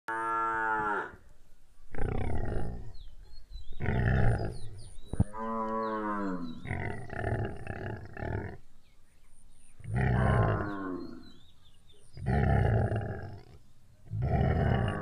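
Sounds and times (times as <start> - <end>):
cattle mooing: 14.1 - 15.0.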